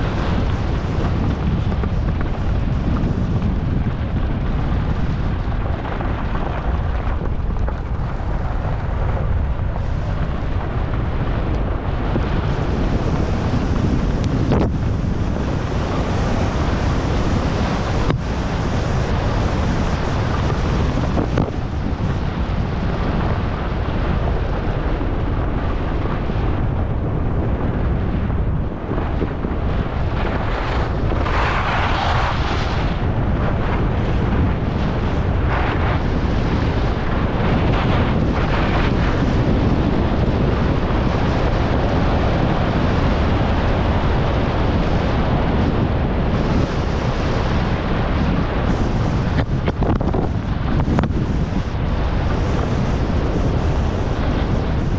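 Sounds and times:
wind buffeting microphone: 0.0 - 54.9
skis scraping on snow: 29.1 - 45.4.

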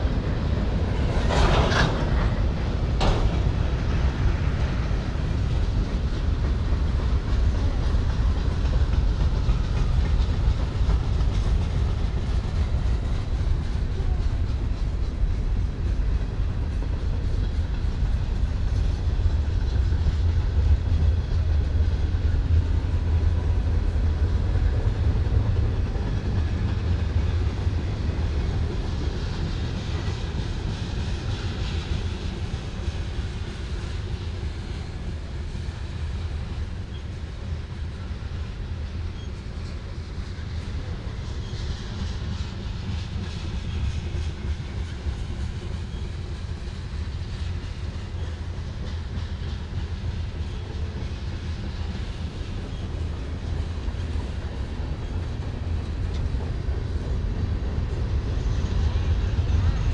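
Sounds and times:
freight train rumbling past: 0.0 - 59.9.

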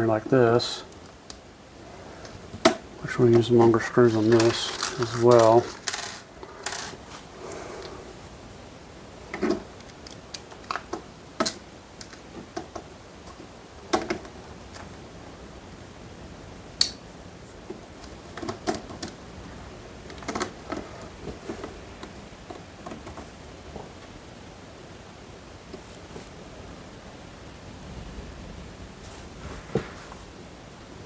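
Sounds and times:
light clicks and knocks of parts: 2.2 - 7.0, 9.3 - 14.9.

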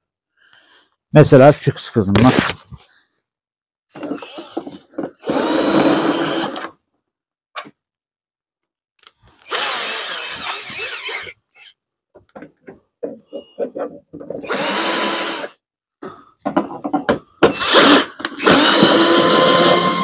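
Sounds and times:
cordless drill running: 5.2 - 6.7, 9.4 - 11.7, 14.4 - 15.6, 17.5 - 20.0.

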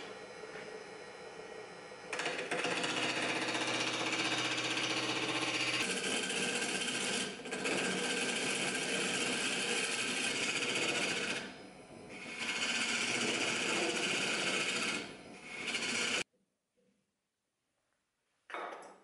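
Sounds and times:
chisel shaving wood on lathe: 2.1 - 11.5, 12.1 - 16.2.

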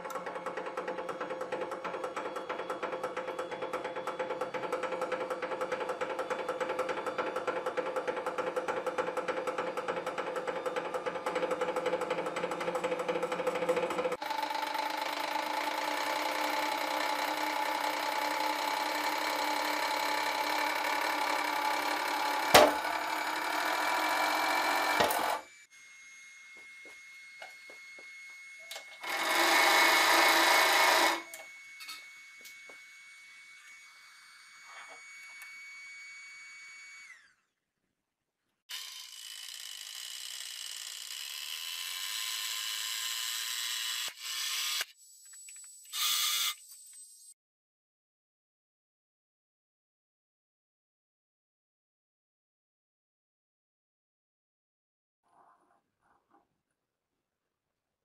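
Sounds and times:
hydraulic press running: 0.0 - 25.5, 28.6 - 32.1.

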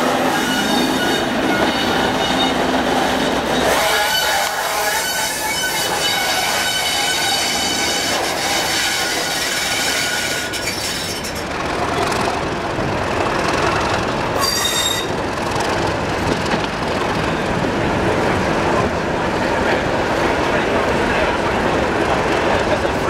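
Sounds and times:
train wheels squealing on rails: 0.0 - 12.1, 14.4 - 15.2
train coaches rumbling and rattling: 0.0 - 23.0.

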